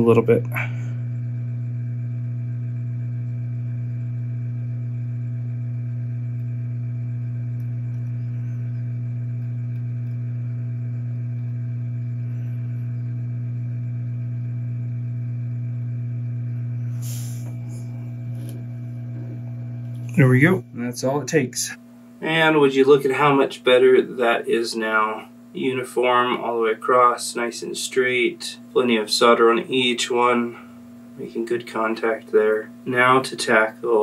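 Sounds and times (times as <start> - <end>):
hot-air station humming: 0.0 - 34.0.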